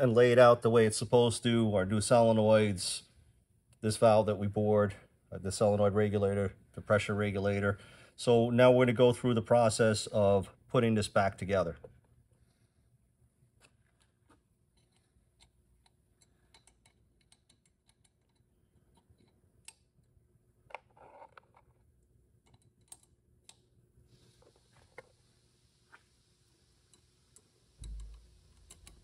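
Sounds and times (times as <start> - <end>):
small metal parts clicking: 14.7 - 19.9, 22.4 - 23.6, 27.8 - 29.0.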